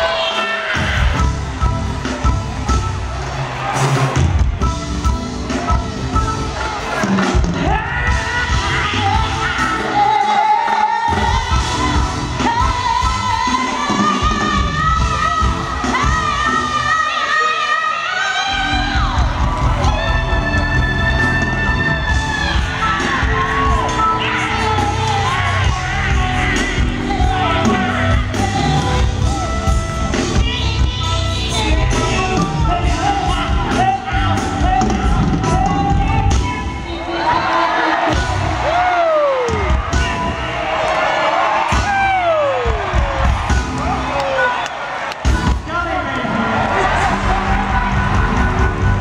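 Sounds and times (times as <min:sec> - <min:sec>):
live soul band playing: 0:00.0 - 0:49.0
woman singing: 0:07.6 - 0:38.8
bass line: 0:18.5 - 0:36.6, 0:46.5 - 0:49.0.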